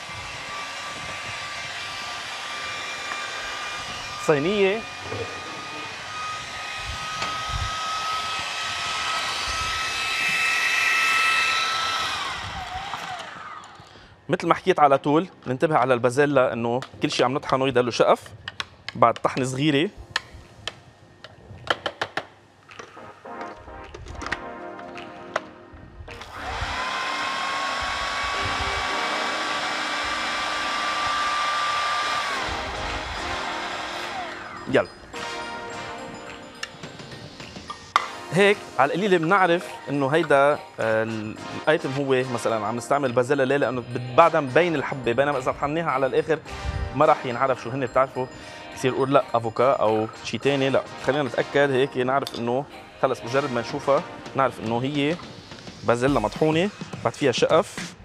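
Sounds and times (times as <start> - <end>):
food processor chopping: 0.0 - 13.8, 26.2 - 34.7
blender motor whirring: 0.0 - 14.0, 26.1 - 35.9.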